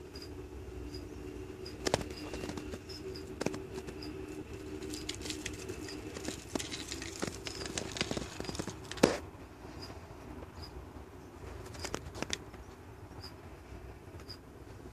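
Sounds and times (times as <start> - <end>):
scorpions scratching on bark: 1.8 - 9.2.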